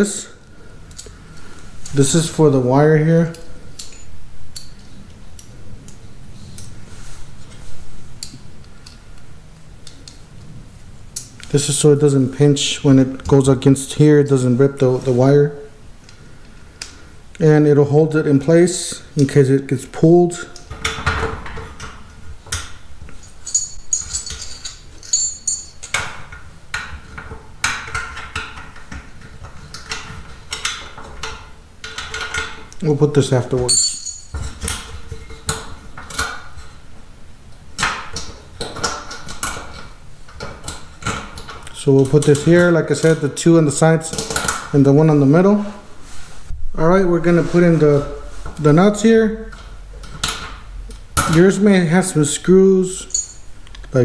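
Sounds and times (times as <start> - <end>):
low steady hum: 0.0 - 54.0
metal terminals jingling: 23.2 - 26.1, 33.7 - 34.7, 52.9 - 53.6.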